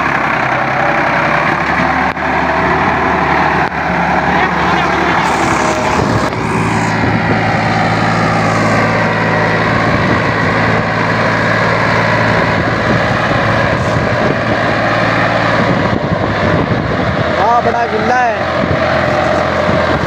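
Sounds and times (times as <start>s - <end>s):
diesel tractor engine running: 0.0s - 20.0s.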